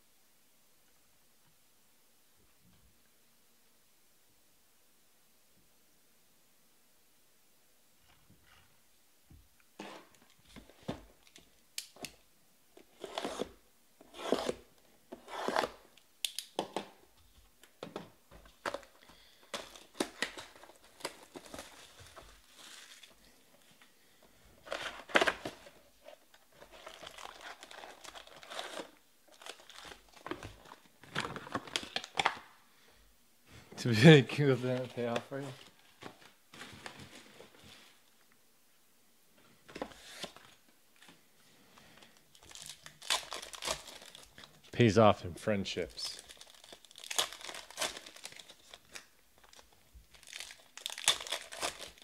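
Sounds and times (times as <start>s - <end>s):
foil card packs crinkling: 18.5s - 23.4s, 26.5s - 32.4s, 42.0s - 44.7s, 46.0s - 52.0s
plastic wrap tearing and crumpling: 26.5s - 32.4s, 42.3s - 44.6s, 46.0s - 52.0s.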